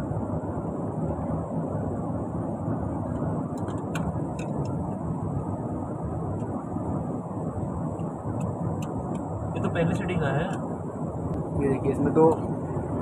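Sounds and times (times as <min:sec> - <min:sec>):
low rumbling background noise: 0:00.0 - 0:13.0.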